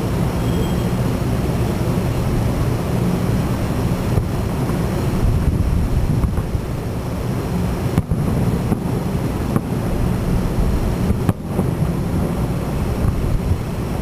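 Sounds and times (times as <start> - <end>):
steady low rumble: 0.0 - 14.0
distant fireworks bangs: 7.3 - 13.8.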